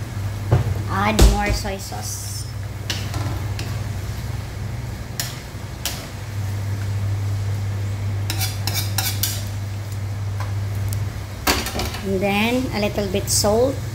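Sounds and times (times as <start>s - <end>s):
utensil scraping a wok: 8.2s - 9.5s.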